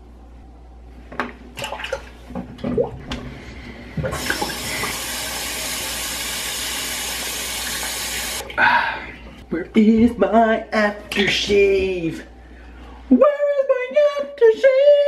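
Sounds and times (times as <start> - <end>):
sink tap running: 4.0 - 8.4.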